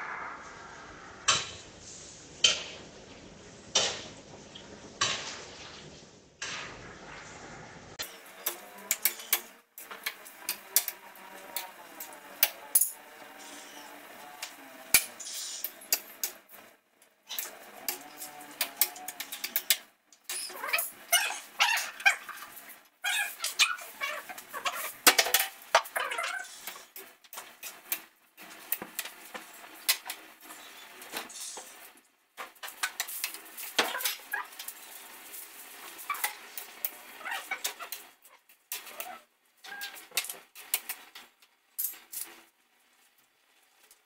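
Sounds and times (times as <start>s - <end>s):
utensils and dishes clattering: 17.3s - 42.5s.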